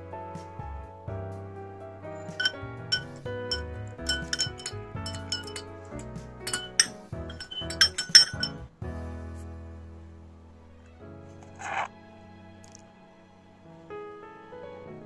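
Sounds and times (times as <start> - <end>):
background music: 0.0 - 15.0
spoon clinking against glass: 2.4 - 8.6.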